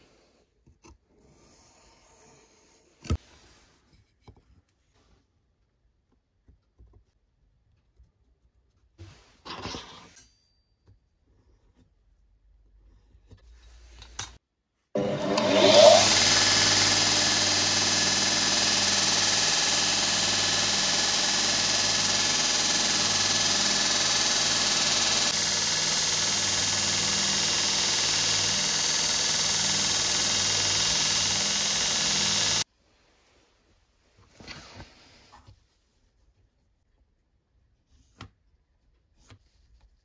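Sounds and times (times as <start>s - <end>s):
belt grinder motor hum: 15.0s - 32.6s.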